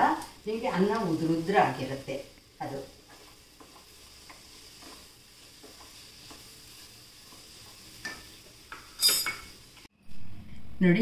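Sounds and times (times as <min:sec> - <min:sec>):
light steady sizzle: 0:00.0 - 0:11.0
spatula scraping a pan: 0:02.8 - 0:09.6.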